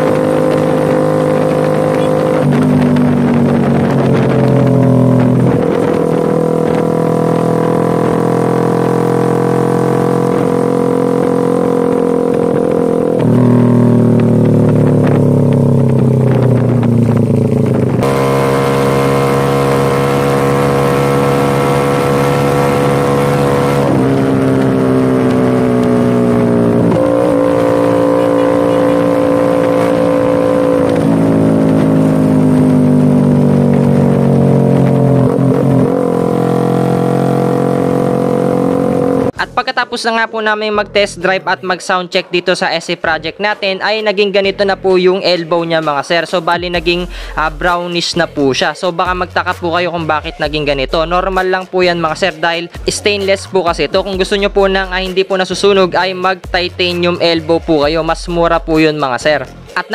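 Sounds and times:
motorcycle engine shifting gears: 0.0s - 39.5s.

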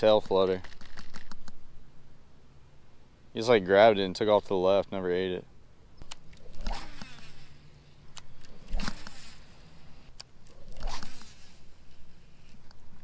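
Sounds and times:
sharp reel clicks: 6.0s - 7.5s, 8.1s - 11.6s
fishing reel gears zipping: 6.0s - 7.6s, 8.3s - 9.7s, 10.6s - 12.5s.

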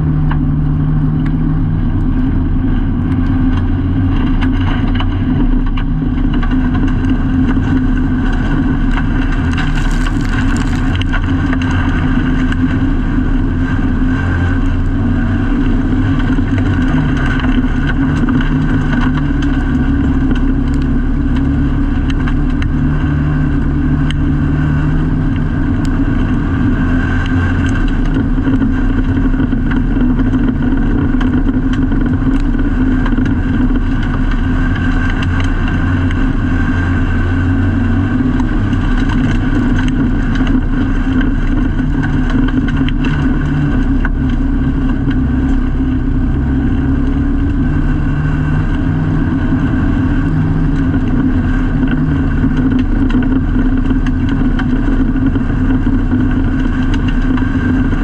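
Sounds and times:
race car engine running hard: 0.0s - 58.0s
sharp clicks and knocks: 3.0s - 12.7s, 38.3s - 46.0s, 49.6s - 58.0s.

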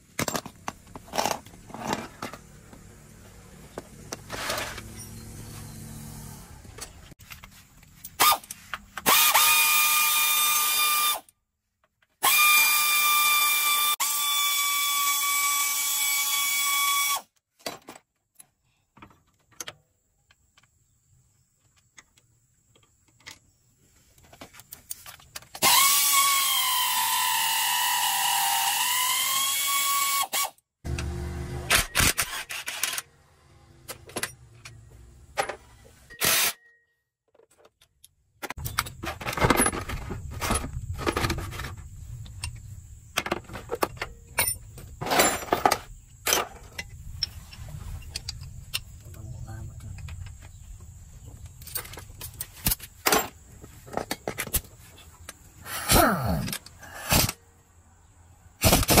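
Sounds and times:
clicks and metal knocks: 17.6s - 20.8s, 33.9s - 35.9s, 37.2s - 49.2s, 49.8s - 55.4s.

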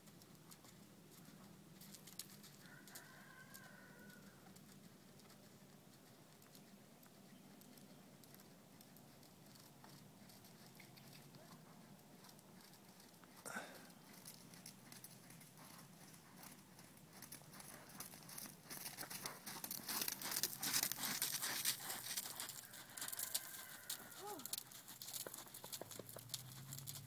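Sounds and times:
hoofbeats on soft sand: 14.0s - 27.0s.

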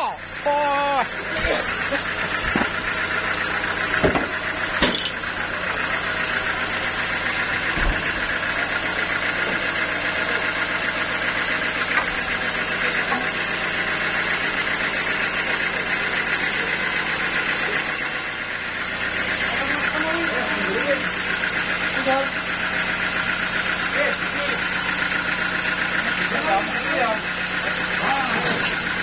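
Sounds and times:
sawmill machinery humming: 0.0s - 29.0s
log knocking on saw carriage: 2.3s - 2.9s, 3.9s - 5.2s, 7.6s - 8.4s, 13.0s - 13.5s.

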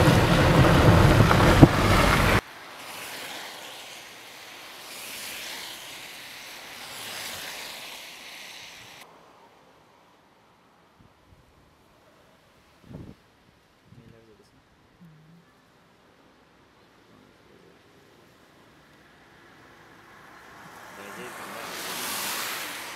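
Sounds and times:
car driving over rough road: 0.0s - 2.4s
wind rushing: 0.0s - 2.4s.

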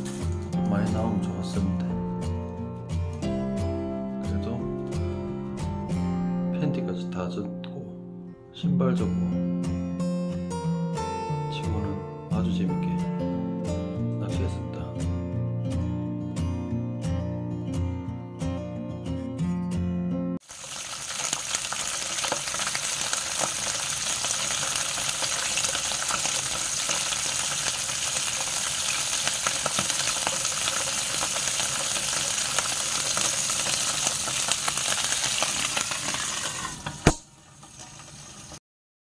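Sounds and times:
fish sizzling in grill pan: 20.4s - 38.6s
pan lid knocking onto pan: 36.8s - 37.3s.

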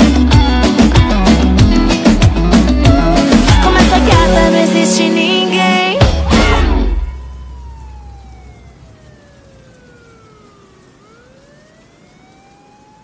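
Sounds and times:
electronic siren-like tone: 3.4s - 13.0s.

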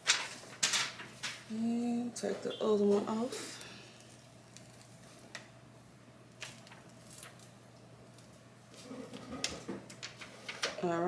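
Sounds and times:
film sheet peeling crackles: 0.0s - 1.5s, 4.0s - 5.5s, 6.3s - 10.8s
low steady hum: 0.0s - 11.0s.

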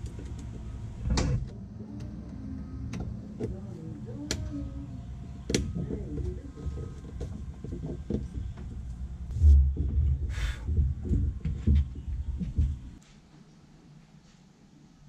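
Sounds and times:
dull knocks and thumps: 5.4s - 13.0s.

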